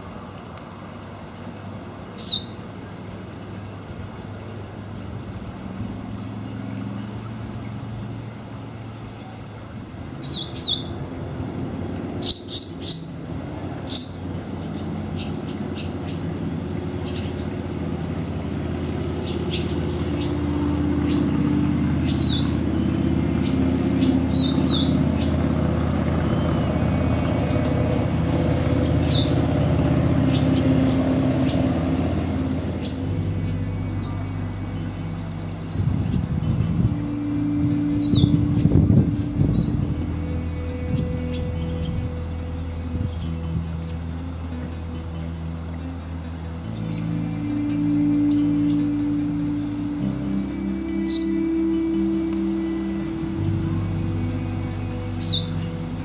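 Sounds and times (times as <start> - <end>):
swallows chirping: 10.2 - 53.8
swallows twittering: 10.2 - 56.0
low rumble: 16.2 - 56.0.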